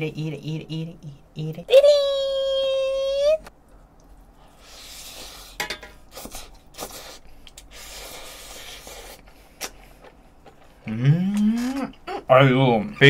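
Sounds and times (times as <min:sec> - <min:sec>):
wet chewing: 0:06.1 - 0:12.0.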